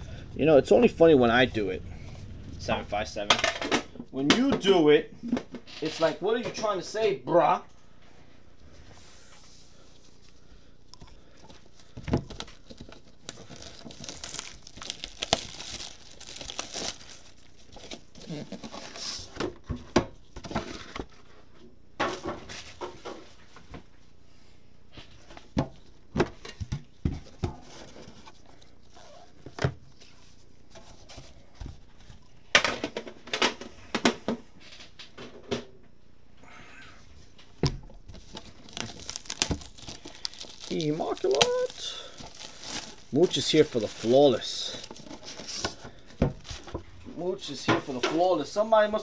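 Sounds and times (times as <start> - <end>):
packaging crinkling and tearing: 11.7 - 19.3, 38.1 - 45.8.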